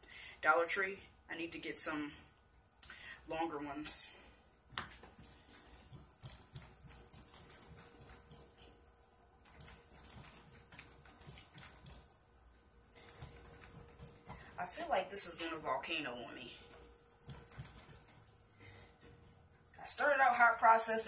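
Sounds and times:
whisk scraping paste in pot: 4.8 - 21.0.

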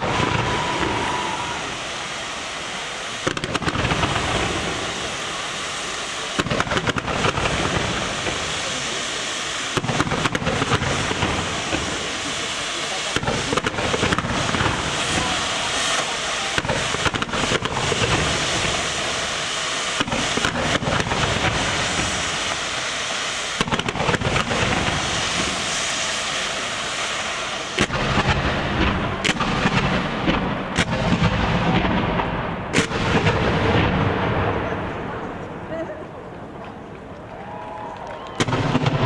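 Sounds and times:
fireworks shells bursting: 0.0 - 35.6
fireworks crackling hiss: 0.0 - 39.0.

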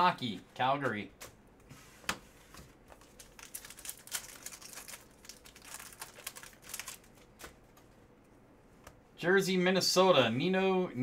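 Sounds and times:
trading cards rustling: 2.9 - 7.6.

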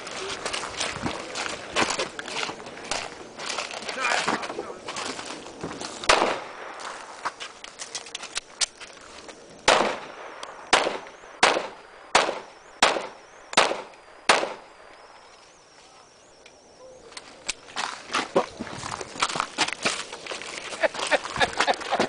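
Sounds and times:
handgun shots with echo: 6.1 - 6.7, 9.7 - 14.6.

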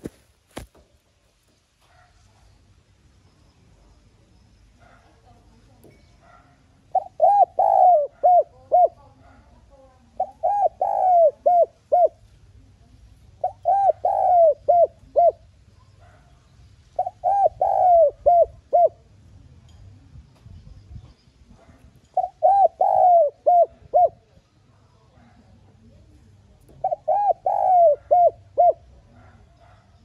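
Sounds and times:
dove cooing: 6.8 - 12.4, 13.3 - 16.4, 17.0 - 19.2, 21.6 - 24.4, 26.7 - 30.0.

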